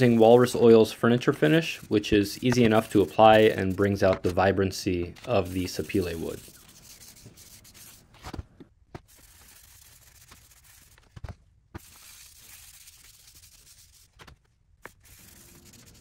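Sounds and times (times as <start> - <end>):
cloth rag rubbing wood: 5.3 - 8.0.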